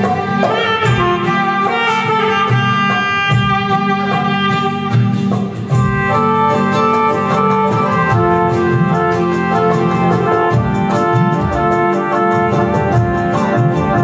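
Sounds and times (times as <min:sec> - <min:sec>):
saxophone over quick beat: 0:00.0 - 0:14.0.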